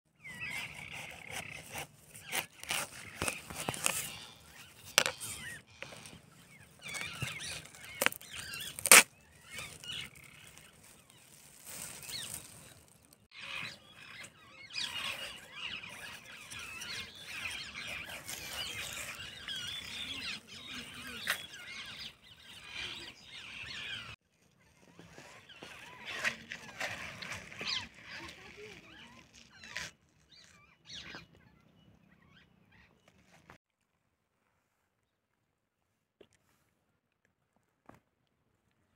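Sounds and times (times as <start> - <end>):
birds calling: 0.1 - 33.5
watermelon breaking open: 6.9 - 10.6.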